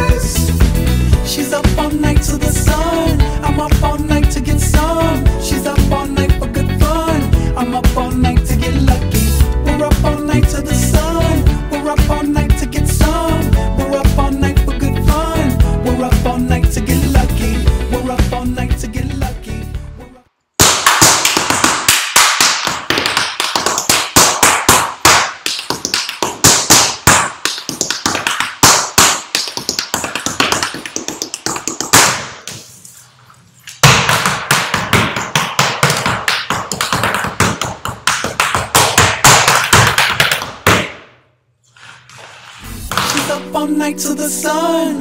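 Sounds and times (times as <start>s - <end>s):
tap shoes on hard floor: 20.6s - 32.7s, 33.7s - 41.1s, 42.1s - 43.4s.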